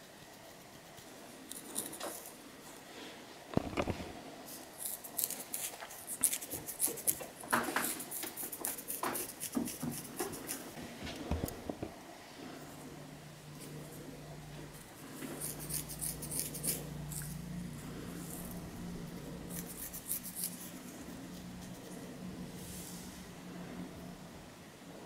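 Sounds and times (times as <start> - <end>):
fingernails scratching scalp: 0.9 - 2.3, 4.8 - 10.8, 15.2 - 17.4, 19.5 - 22.0.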